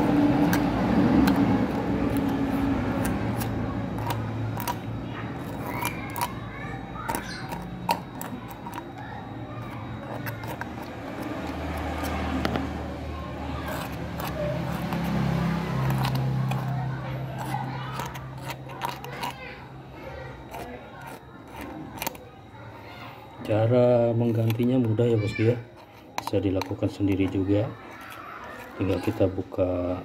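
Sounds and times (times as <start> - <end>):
metal tool scraping metal: 24.3 - 29.4.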